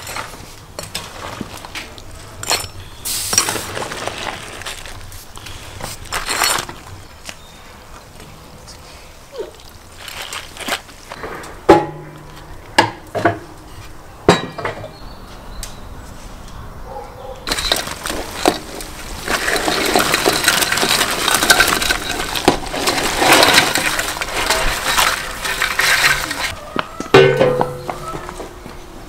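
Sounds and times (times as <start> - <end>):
shells clattering into boiling water: 17.5 - 26.5.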